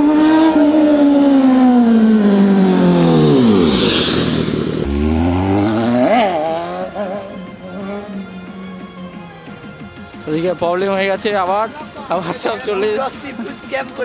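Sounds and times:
motorcycle engine revving: 0:00.0 - 0:08.9.

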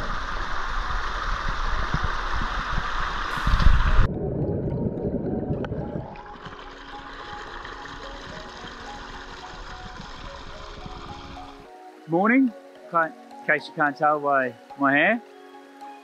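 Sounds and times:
underwater gurgling: 0:00.0 - 0:11.7
water rushing over rocks: 0:00.0 - 0:16.0.

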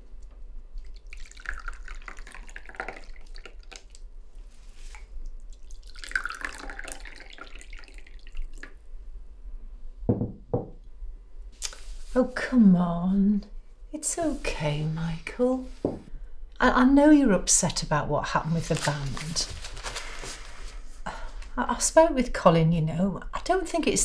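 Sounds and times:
tea pouring into mugs: 0:00.8 - 0:04.0, 0:04.9 - 0:08.8
teapot knocking on wooden table: 0:10.1 - 0:10.8.

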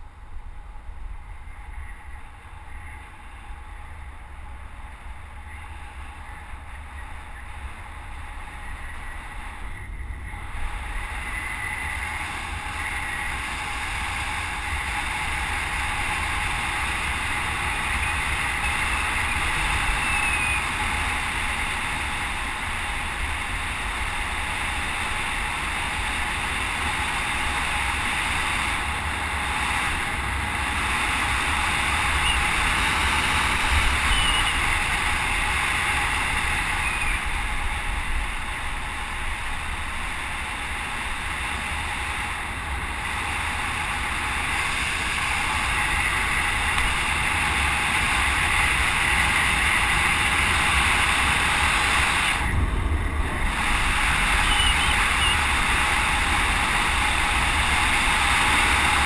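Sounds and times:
wind noise on camera: 0:00.6 - 0:59.0.

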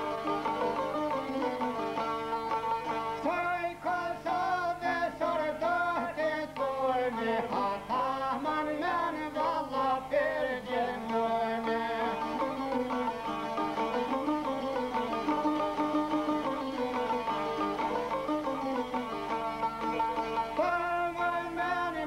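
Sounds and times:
plucked long-necked lutes: 0:00.0 - 0:03.4, 0:11.0 - 0:21.3
man singing folk song: 0:02.8 - 0:17.0, 0:19.4 - 0:22.0.

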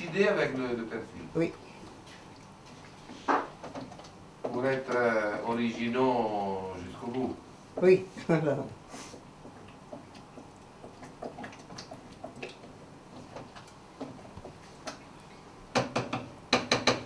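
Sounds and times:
wooden spoon stirring in saucepan: 0:00.0 - 0:17.0
spoon knocking on pan: 0:15.7 - 0:17.0.

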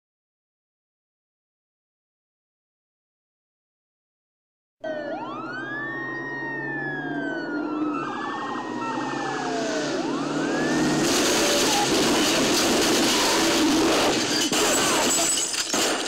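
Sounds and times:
police sirens wailing: 0:04.8 - 0:15.9
traffic noise: 0:04.8 - 0:16.0.

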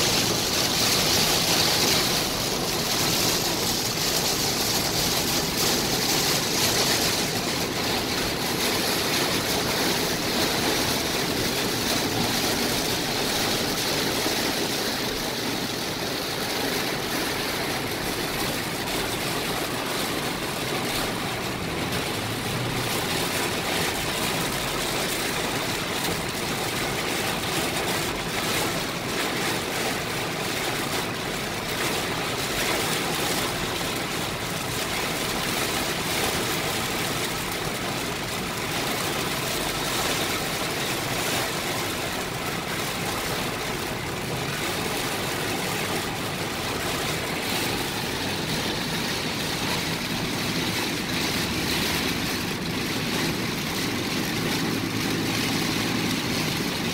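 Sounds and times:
heavy rain pounding on car: 0:00.0 - 0:56.9
tyres hissing through water: 0:32.2 - 0:56.9.

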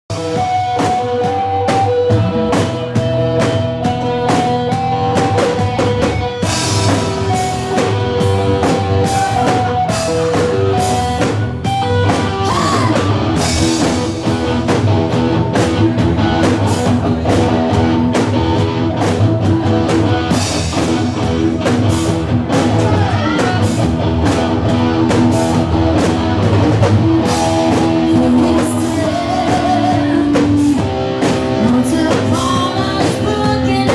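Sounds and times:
bass guitar: 0:00.0 - 0:33.9
drum kit beat: 0:00.1 - 0:33.9
electric guitars: 0:00.1 - 0:33.9
woman singing: 0:12.4 - 0:13.1, 0:27.7 - 0:30.8, 0:31.5 - 0:33.9.

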